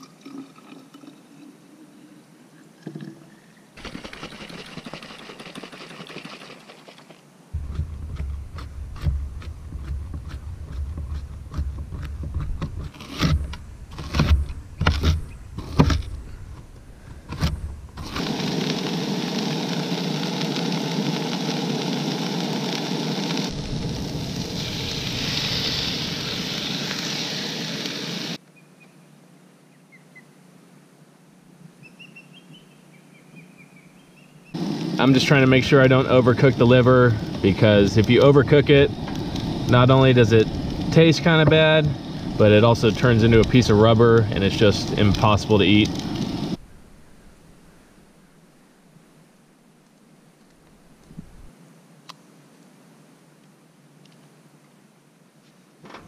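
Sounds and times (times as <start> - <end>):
water pouring into glass jar: 0.0 - 1.6
faint outdoor background: 0.0 - 56.0
camp stove hissing: 7.5 - 28.4, 34.5 - 46.6.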